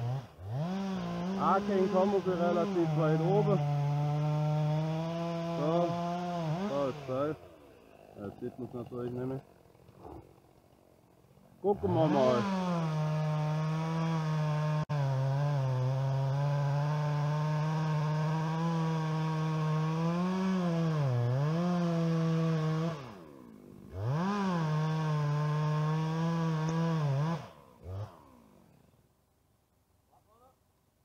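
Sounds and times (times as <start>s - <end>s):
chainsaw cutting wood: 0.0s - 29.1s.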